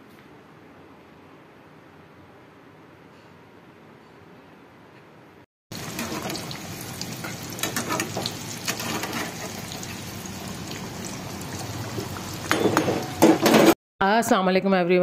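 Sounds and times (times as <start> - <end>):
food deep-frying in hot oil: 5.7 - 13.6
spatula turning food: 5.8 - 9.9.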